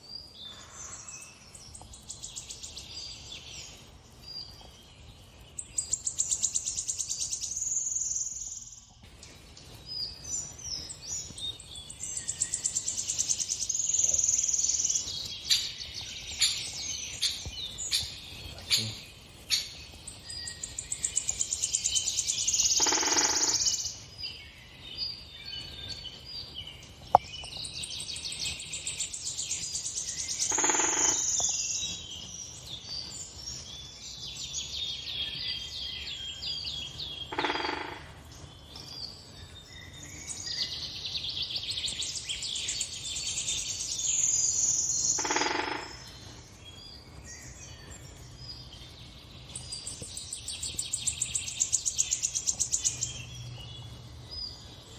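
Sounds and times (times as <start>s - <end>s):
songbirds chirping and trilling: 0.0s - 54.9s
loud full bird call: 10.1s - 26.6s, 28.7s - 48.2s.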